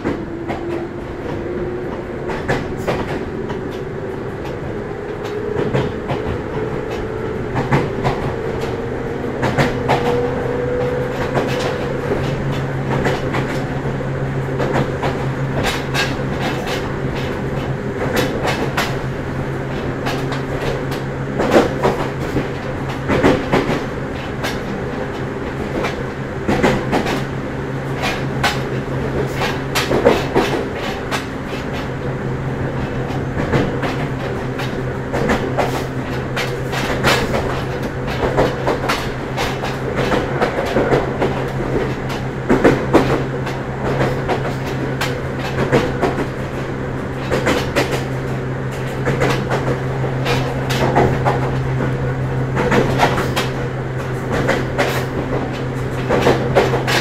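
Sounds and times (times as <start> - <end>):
electric train whine: 0.0 - 57.0
wheels clacking: 0.0 - 57.0.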